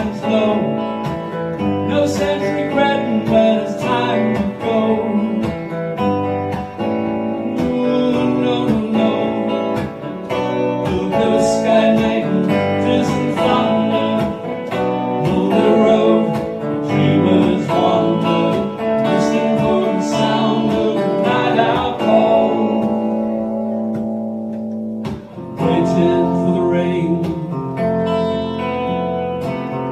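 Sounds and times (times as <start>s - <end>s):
man singing: 0.0s - 5.8s, 7.1s - 23.6s, 25.5s - 28.6s
electric guitar strummed chords: 0.0s - 29.9s.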